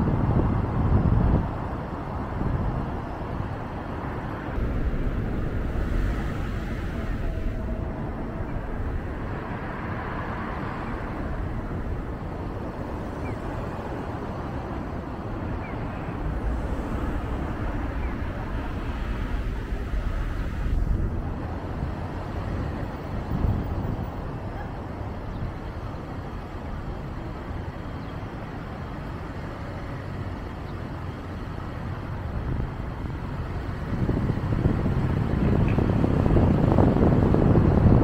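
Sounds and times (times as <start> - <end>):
wind on microphone: 0.0 - 27.2, 31.8 - 38.0
tyre and engine rumble: 0.0 - 38.0.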